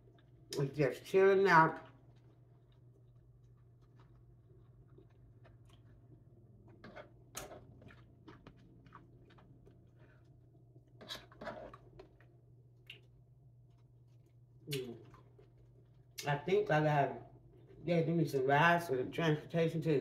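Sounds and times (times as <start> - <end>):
chewing: 1.8 - 15.9.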